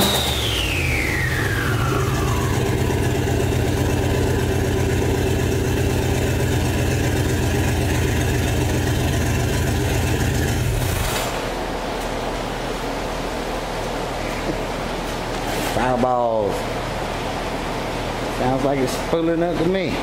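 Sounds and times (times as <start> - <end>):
car engine idling: 0.0 - 15.0.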